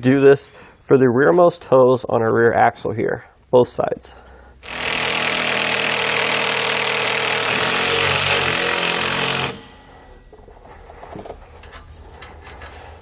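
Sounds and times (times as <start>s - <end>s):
cordless drill driving screw: 4.6s - 9.7s.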